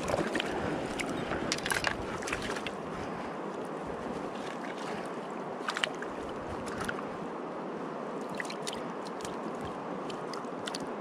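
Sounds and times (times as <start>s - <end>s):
stream running over gravel: 0.0s - 2.9s.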